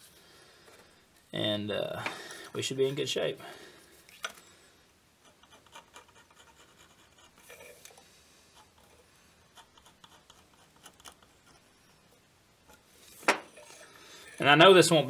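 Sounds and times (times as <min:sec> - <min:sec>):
scribe scratching on metal: 0:05.2 - 0:07.8, 0:09.5 - 0:12.0.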